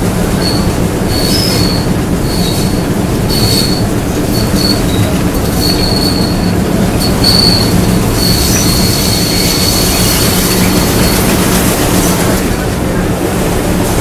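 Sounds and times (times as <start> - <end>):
diesel locomotive engine drone: 0.0 - 14.0
high-pitched wheel squeal: 0.4 - 11.3.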